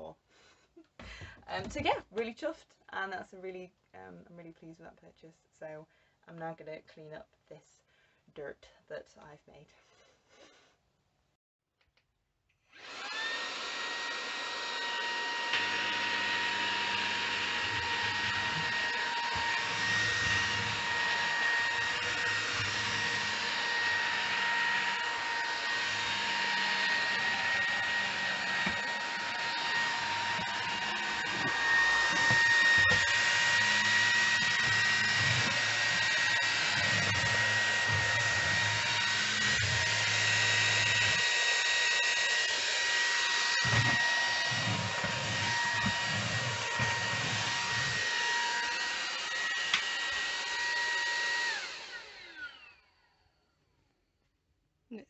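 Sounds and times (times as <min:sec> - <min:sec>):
vacuum cleaner whining: 0:12.7 - 0:53.4
vacuum motor winding down: 0:12.8 - 0:53.0.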